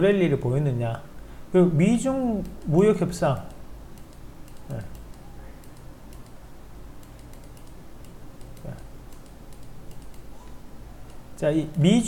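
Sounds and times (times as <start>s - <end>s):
faint low hum: 0.0s - 12.0s
computer mouse clicks: 2.4s - 2.8s, 3.5s - 6.4s, 7.0s - 11.8s.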